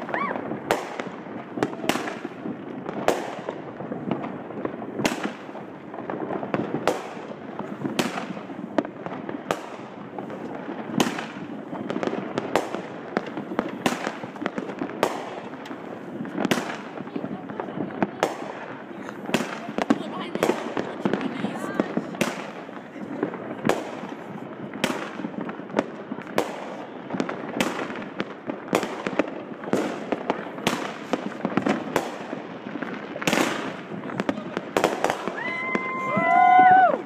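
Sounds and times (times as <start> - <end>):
fireworks bangs: 0.0 - 37.0
fireworks crackling and popping: 0.0 - 37.0.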